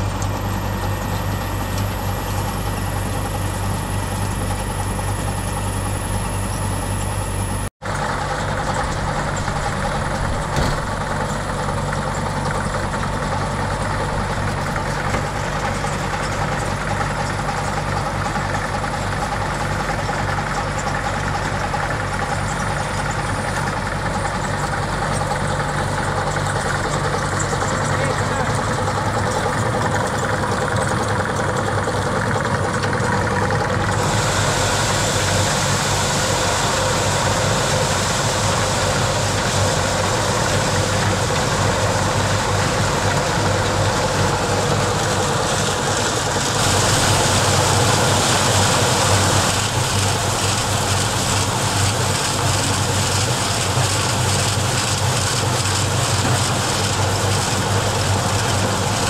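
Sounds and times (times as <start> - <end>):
machine running with low hum: 0.0 - 59.0.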